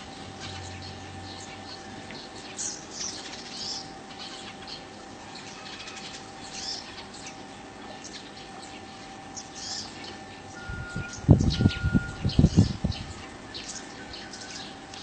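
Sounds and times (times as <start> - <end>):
faint steady hum: 0.0 - 15.0
steady outdoor hiss: 0.0 - 15.0.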